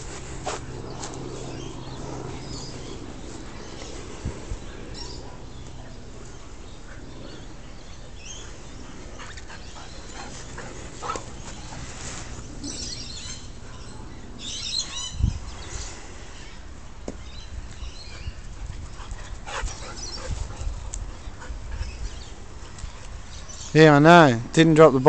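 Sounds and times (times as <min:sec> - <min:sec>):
dogs playing on grass: 0:00.0 - 0:24.5
birds chirping faintly: 0:00.0 - 0:25.0.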